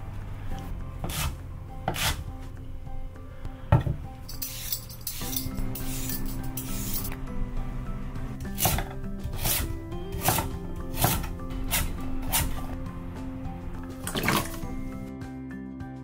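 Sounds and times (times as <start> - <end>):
knife chopping on wooden board: 1.0 - 2.2, 8.5 - 12.6
peeler scraping potato skin: 1.0 - 2.3, 8.4 - 12.8.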